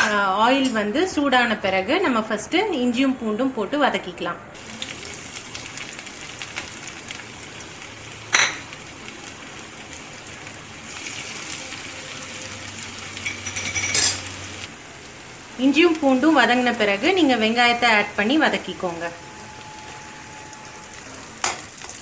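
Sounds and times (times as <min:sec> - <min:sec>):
ginger and garlic sizzling in oil: 0:04.6 - 0:22.0.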